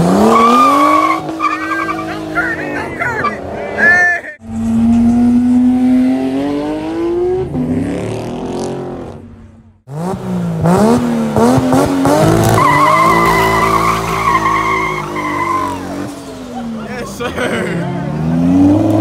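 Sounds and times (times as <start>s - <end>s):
car engine revving: 0.0s - 19.0s
tyre squeal: 12.5s - 16.0s.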